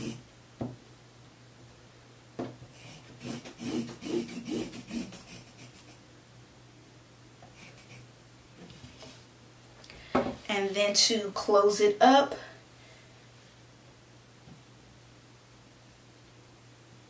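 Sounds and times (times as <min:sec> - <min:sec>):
chalk scratching on fabric: 0:02.8 - 0:06.0, 0:07.5 - 0:08.1.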